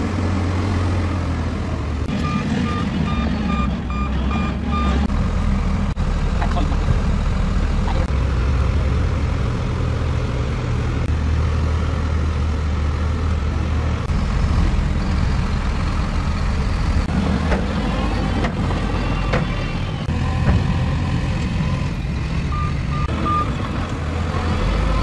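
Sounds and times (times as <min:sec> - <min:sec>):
bulldozer diesel engine under load: 0:00.0 - 0:25.0.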